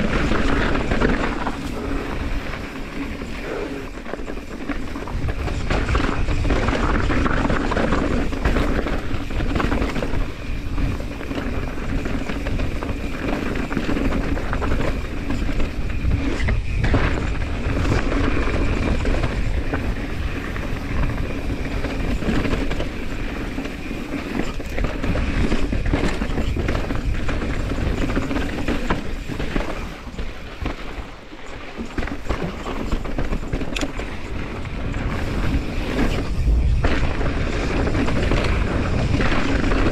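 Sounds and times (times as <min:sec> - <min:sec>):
bike rattling over bumps: 0:00.0 - 0:39.9
wind buffeting microphone: 0:00.0 - 0:39.9.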